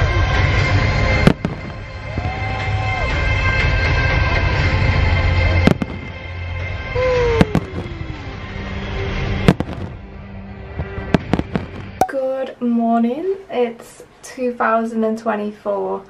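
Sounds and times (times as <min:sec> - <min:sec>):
music: 0:00.0 - 0:12.7
fireworks crackling: 0:01.0 - 0:03.9, 0:04.6 - 0:06.3, 0:07.0 - 0:12.0
fireworks loud bangs: 0:01.1 - 0:02.8, 0:05.6 - 0:06.3, 0:07.3 - 0:08.1, 0:09.4 - 0:10.1, 0:10.7 - 0:12.0.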